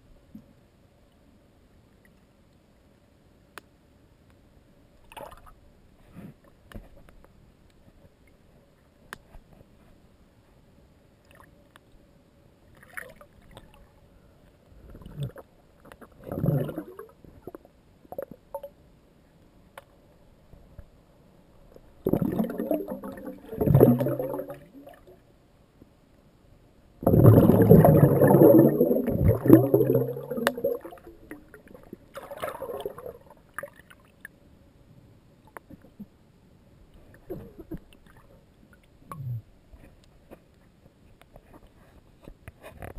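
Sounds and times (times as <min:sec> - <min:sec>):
faint steady hum: 0:00.0 - 0:42.9
muffled underwater bubbling: 0:16.1 - 0:18.7, 0:22.0 - 0:25.1, 0:27.0 - 0:33.8.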